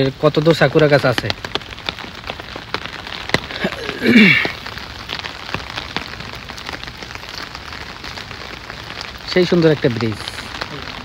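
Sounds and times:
close raindrops ticking: 0.0s - 11.0s
steady rain falling: 0.0s - 11.0s.

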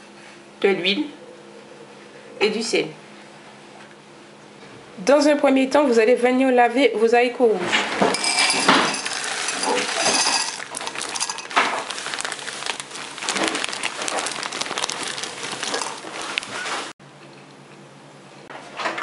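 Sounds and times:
beans pattering into glass bowl: 8.2s - 16.5s
plastic bag crinkling: 8.2s - 17.0s.

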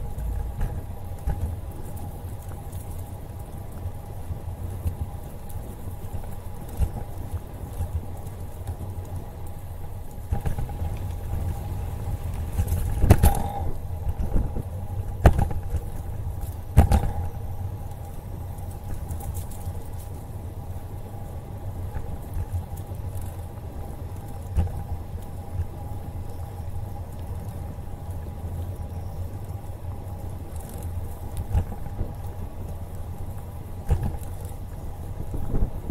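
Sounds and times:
bicycle tyres rumbling on pavement: 0.0s - 35.9s
faint steady hum: 0.0s - 35.9s
wind on microphone: 10.3s - 17.6s, 33.8s - 35.9s.

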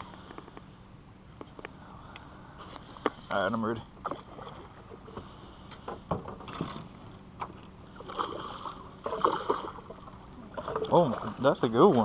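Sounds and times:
water lapping against boat: 2.8s - 12.0s
splashes: 7.9s - 12.0s.

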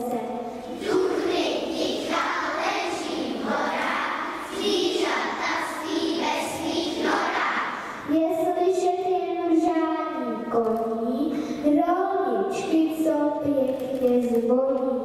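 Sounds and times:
children's choir singing: 0.0s - 8.1s
children reciting verse: 0.0s - 14.3s.

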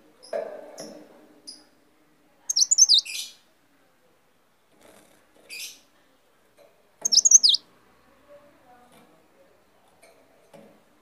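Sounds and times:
songbird chirping: 2.4s - 3.4s, 7.0s - 7.7s.

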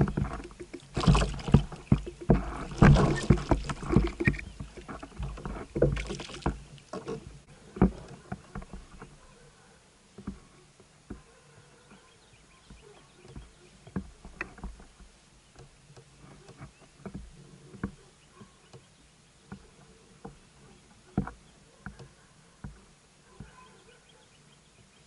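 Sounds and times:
knocks and slaps on plastic hull: 0.0s - 9.2s.

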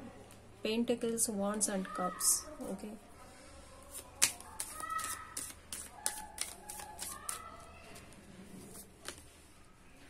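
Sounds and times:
cards being shuffled: 3.9s - 9.3s.

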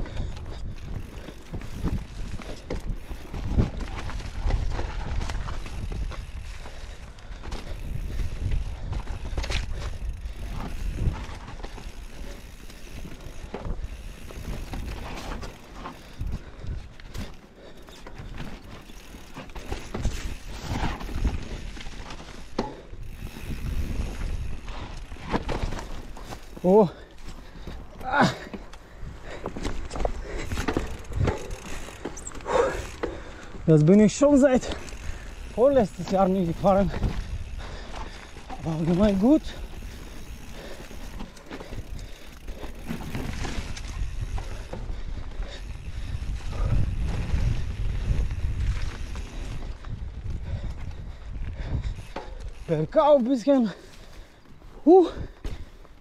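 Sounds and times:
wind rumble on microphone: 0.0s - 11.8s, 23.0s - 24.9s, 42.8s - 52.7s
bike chain and frame rattling: 0.0s - 56.0s
bike tyres crunching over ground: 0.0s - 56.0s.

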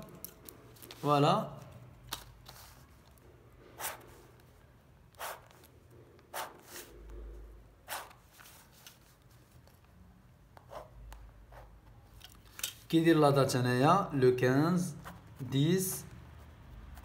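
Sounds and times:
pen scraping along ruler on paper: 3.8s - 4.4s, 5.1s - 7.1s, 7.8s - 9.2s, 10.6s - 11.8s.

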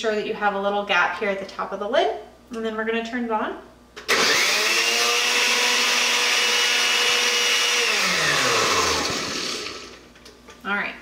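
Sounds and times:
blender motor running: 4.1s - 10.1s.

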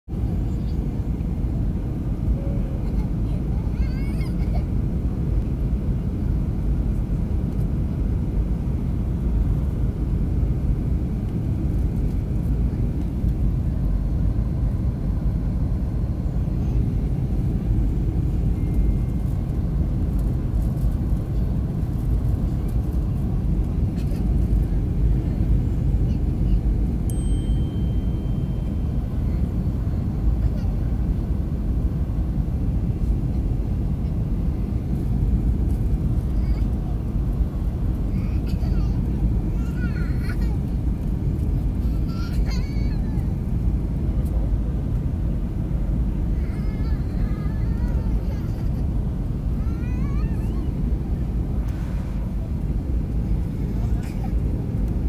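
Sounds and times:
airliner cabin rumble: 0.1s - 55.0s.

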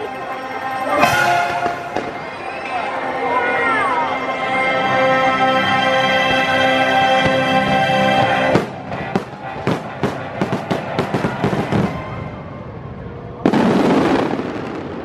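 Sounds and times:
fireworks show music: 0.0s - 15.0s
firework reports and crackles: 1.0s - 2.8s, 8.2s - 15.0s
loud firework blast: 8.5s - 15.0s.

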